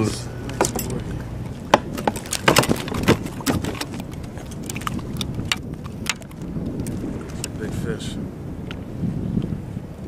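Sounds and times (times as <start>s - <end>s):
fish thrashing clicks and slaps: 0.5s - 7.6s.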